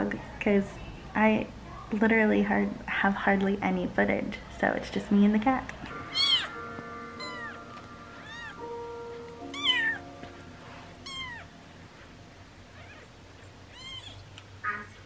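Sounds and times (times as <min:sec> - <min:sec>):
kitten mewing: 0:11.0 - 0:11.5, 0:13.7 - 0:15.0.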